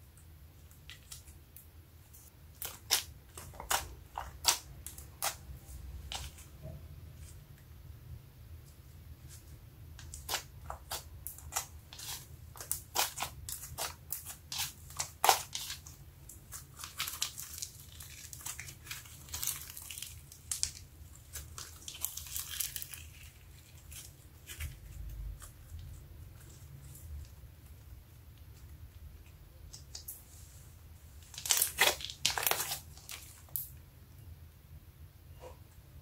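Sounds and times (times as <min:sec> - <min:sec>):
sticky slime crackles and pops: 0:02.5 - 0:05.5, 0:09.9 - 0:25.9, 0:31.2 - 0:33.8.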